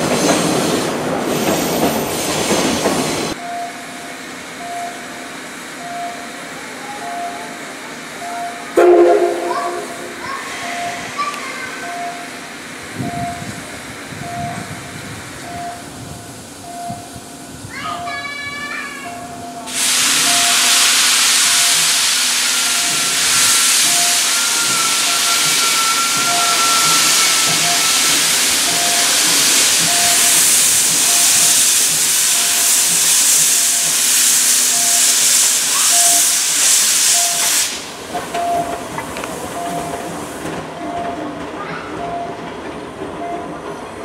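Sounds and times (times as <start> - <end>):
steam locomotive venting steam hiss: 0.0 - 41.6
short regular beeps: 11.8 - 12.4, 19.2 - 20.8, 22.7 - 29.2, 37.1 - 37.6, 38.4 - 38.8, 39.6 - 40.0.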